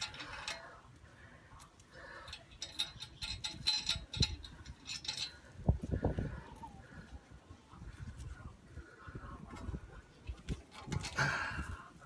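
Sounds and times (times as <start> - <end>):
metallic clicking of hand tools: 0.0 - 0.8, 1.6 - 5.4.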